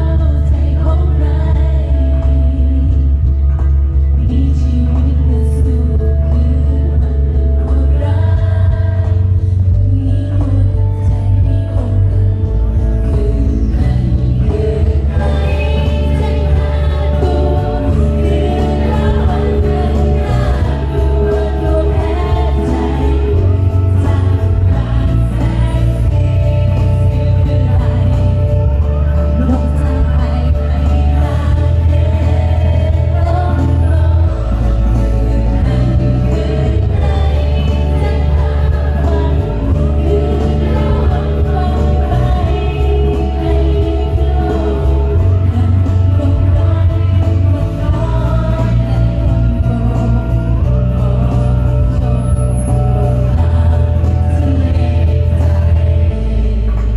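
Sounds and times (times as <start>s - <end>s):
instrumental accompaniment with bass: 0.0s - 56.9s
woman singing lead: 0.0s - 56.9s
choir singing in harmony: 13.5s - 56.9s.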